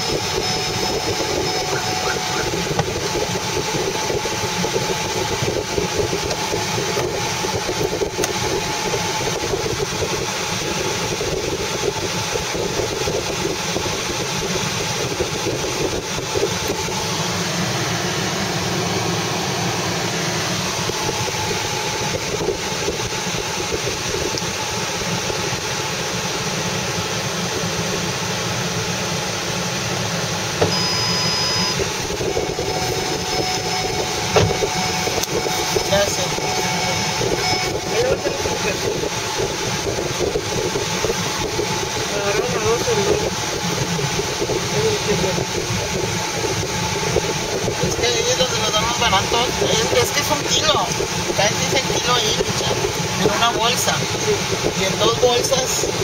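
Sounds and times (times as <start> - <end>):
car engine and road noise: 0.0 - 56.0.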